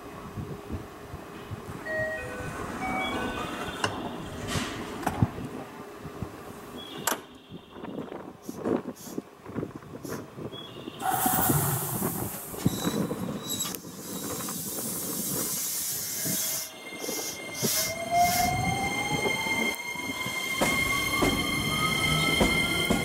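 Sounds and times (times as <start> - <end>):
train air hiss: 8.4 - 10.4, 11.0 - 18.6
traction motors whining: 11.0 - 23.0
train wheels rumbling: 11.0 - 23.0.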